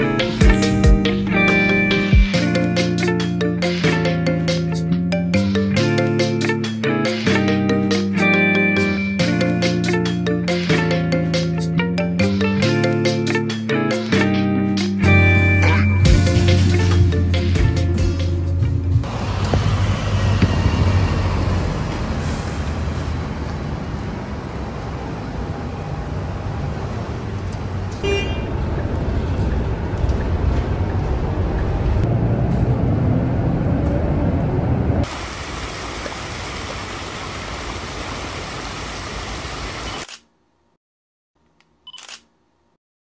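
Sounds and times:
street traffic: 15.1 - 40.3.

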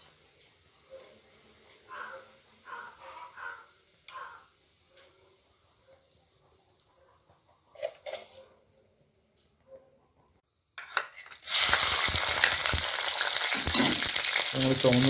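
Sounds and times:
shallots sizzling in hot oil: 11.2 - 15.0.

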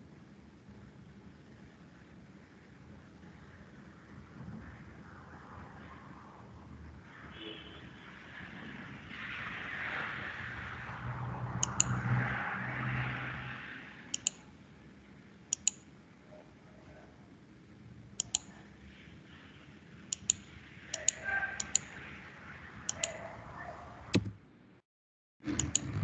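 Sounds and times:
computer mouse clicking: 11.6 - 12.0, 14.1 - 14.4, 15.5 - 15.8, 18.2 - 18.6, 20.1 - 21.9, 22.8 - 23.2, 25.5 - 25.9.

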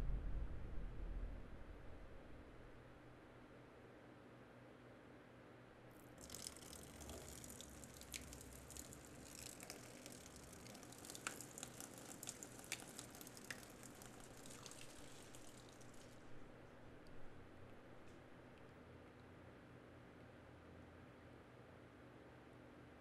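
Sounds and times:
drips: 6.0 - 18.7
liquid trickling: 6.0 - 18.7.

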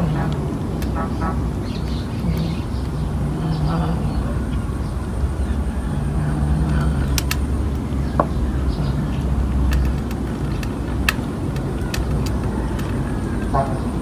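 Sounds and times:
low engine-like hum: 0.0 - 14.0
sharp clicks: 6.6 - 8.4, 9.5 - 13.3.

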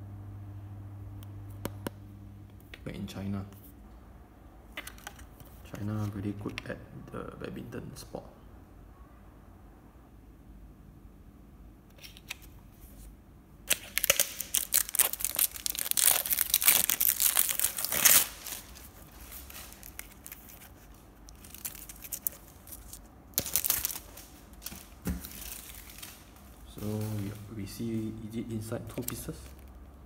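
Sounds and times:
packaging tearing and crinkling: 13.7 - 27.5.

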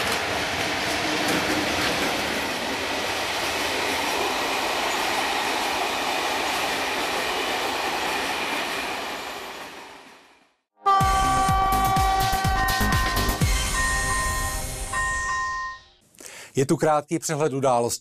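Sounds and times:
rumble of train wheels on rails: 0.0 - 10.5.

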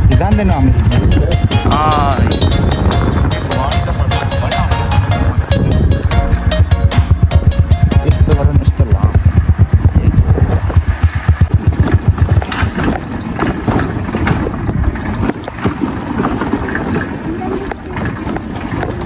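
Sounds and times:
scooter engine running: 0.0 - 19.0
tyres rattling over stony track: 0.0 - 19.0.

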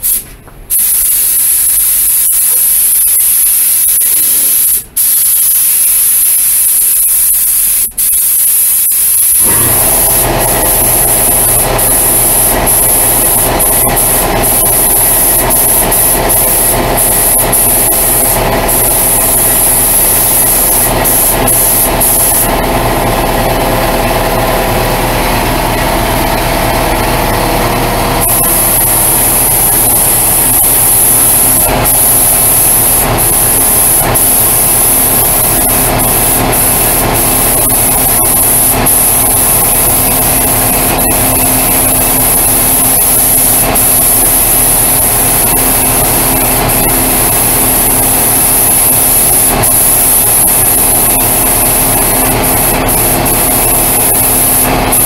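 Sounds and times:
spray gun hissing: 0.0 - 22.6, 28.2 - 55.0
motor hum: 9.4 - 15.6.

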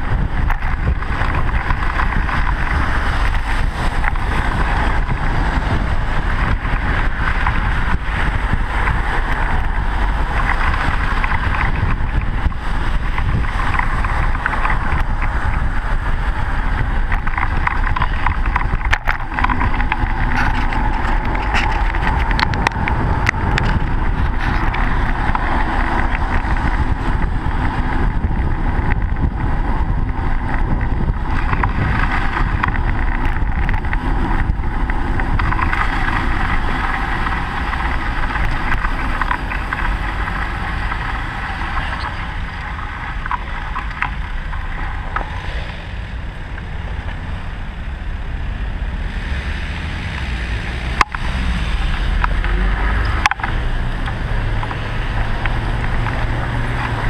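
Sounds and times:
bicycle road noise: 0.0 - 57.0
car traffic passing: 0.0 - 57.0
wind on microphone: 0.0 - 57.0.

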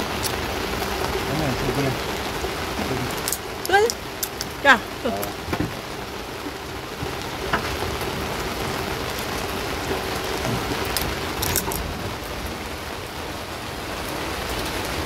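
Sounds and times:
heavy rain falling: 0.0 - 15.0.

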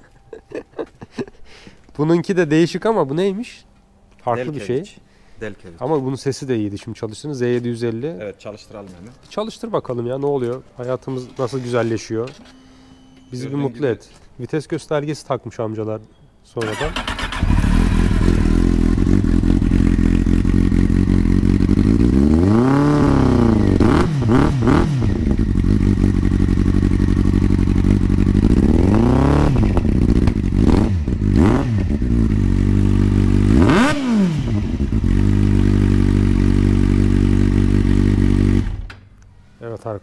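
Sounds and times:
motorcycle engine idling and revving: 16.7 - 38.9.

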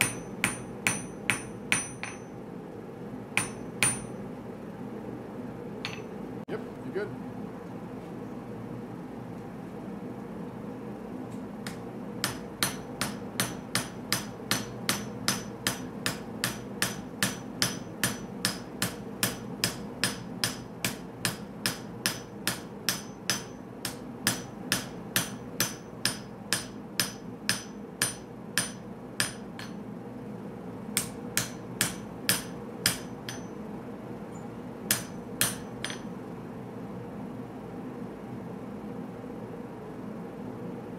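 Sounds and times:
hammer striking blade on anvil: 0.0 - 2.3, 3.4 - 4.2, 5.9 - 6.2, 11.7 - 29.8, 31.0 - 33.6, 34.9 - 36.1.

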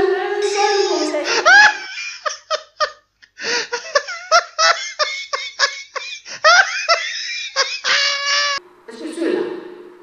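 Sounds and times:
person laughing in quick bursts: 1.2 - 8.6.

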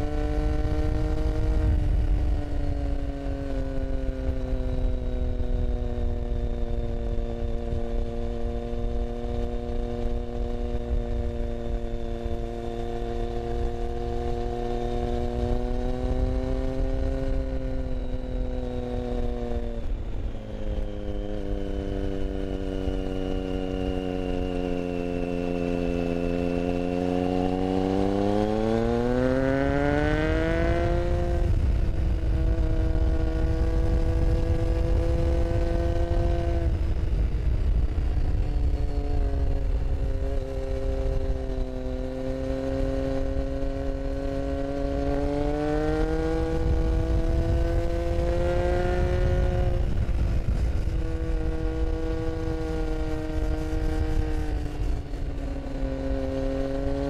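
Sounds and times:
motorcycle engine running: 0.0 - 57.0
wind noise on microphone: 0.0 - 57.0.

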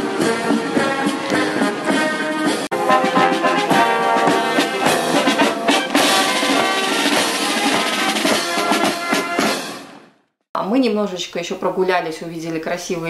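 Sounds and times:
marching band brass: 0.0 - 10.2
snare drum beat: 2.7 - 10.0.

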